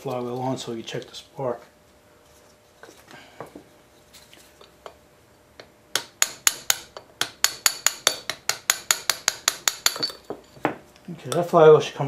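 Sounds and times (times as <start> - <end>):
hammer tapping steel: 5.6 - 10.4.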